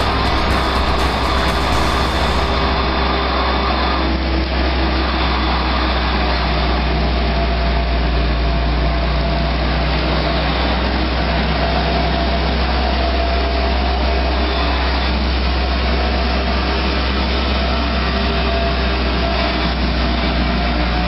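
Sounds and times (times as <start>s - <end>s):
drill rig droning: 0.0s - 7.7s.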